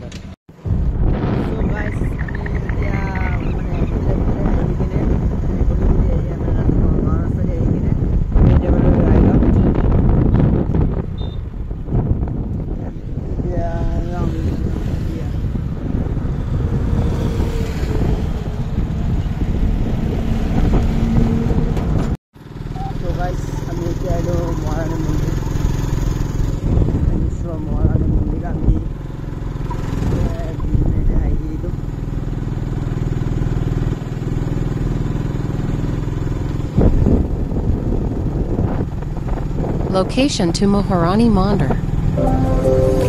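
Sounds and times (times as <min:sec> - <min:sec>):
vehicle engine: 0:00.0 - 0:40.0
road noise: 0:00.0 - 0:43.0
wind buffeting microphone: 0:00.6 - 0:22.2, 0:23.1 - 0:34.5, 0:36.0 - 0:40.6
motorcycle engine running: 0:22.4 - 0:39.9.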